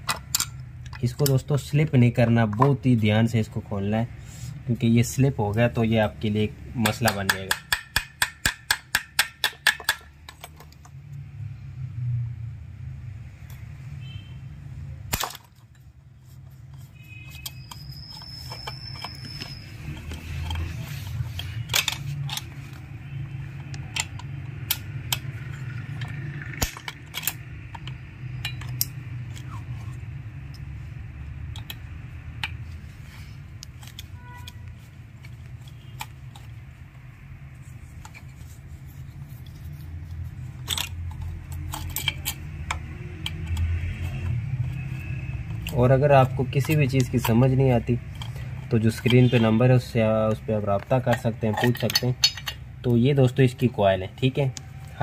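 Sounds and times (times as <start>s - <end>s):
screwdriver clicks and scrapes: 15.1s - 53.0s.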